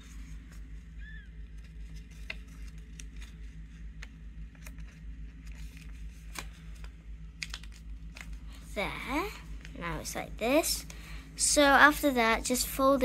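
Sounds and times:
low hum: 0.0 - 13.0
paper crackling and rustling: 1.4 - 8.6.

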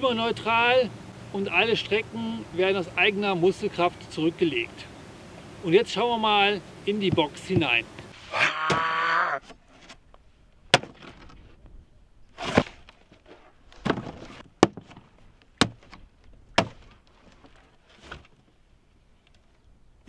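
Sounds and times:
cardboard rustling and scraping: 9.4 - 10.1, 12.3 - 15.2, 16.6 - 18.5.

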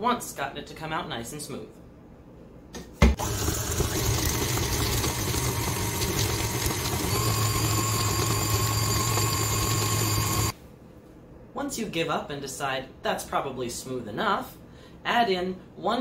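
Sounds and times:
stand mixer motor running: 3.2 - 10.6.

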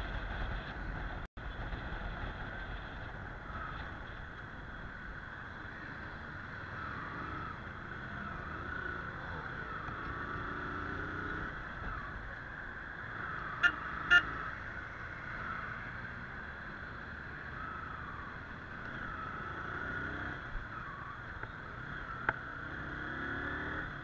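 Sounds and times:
motorcycle riding: 0.0 - 24.0
motorcycle horn beeps: 13.6 - 14.4.

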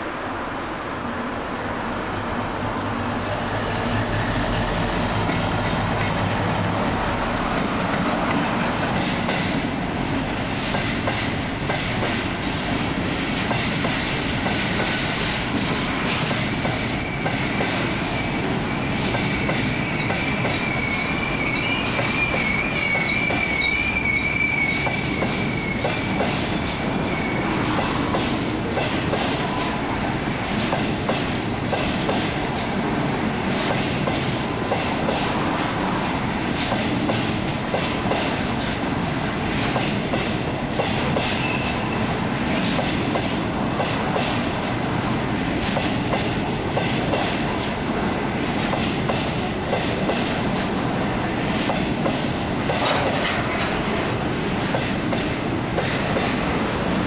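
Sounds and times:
high wheel squeal: 16.9 - 27.7.

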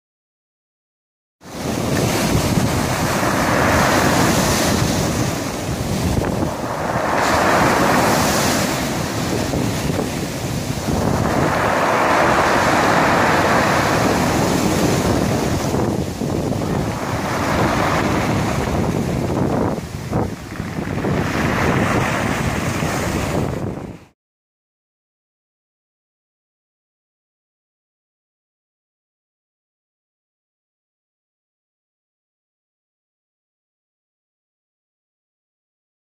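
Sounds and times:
waves breaking on pebble beach: 1.5 - 23.8.

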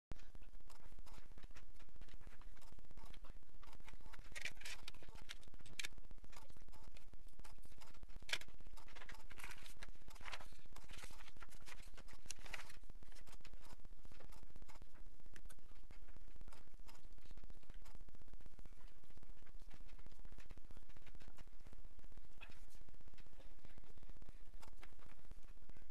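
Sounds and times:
steady low hum: 0.1 - 25.9
pencil writing: 8.7 - 14.9
paper rustling and sliding: 9.0 - 13.3.

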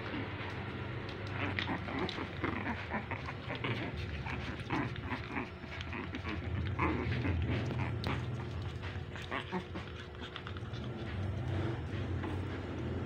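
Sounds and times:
steady low hum: 0.0 - 13.0
puppies whimpering and yipping: 1.3 - 11.6.

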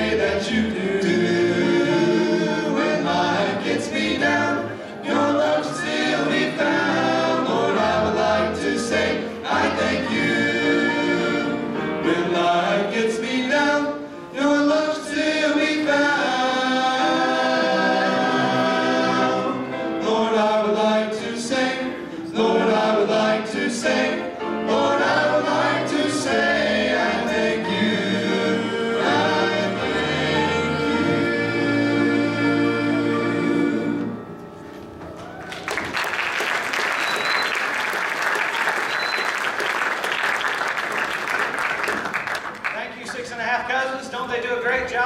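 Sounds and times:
voices singing gospel song: 0.0 - 34.2
applause: 35.4 - 43.3.

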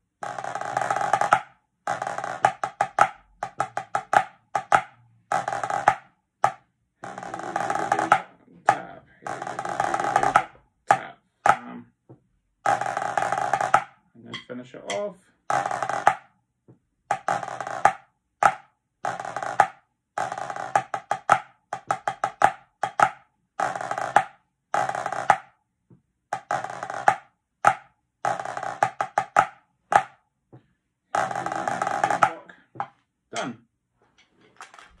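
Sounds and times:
snare drum march: 0.2 - 11.8, 12.7 - 16.3, 17.1 - 25.5, 26.3 - 30.2, 31.2 - 32.5.

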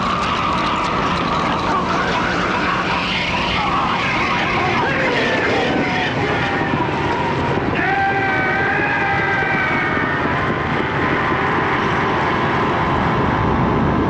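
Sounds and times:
man screaming in agony: 7.7 - 10.2.

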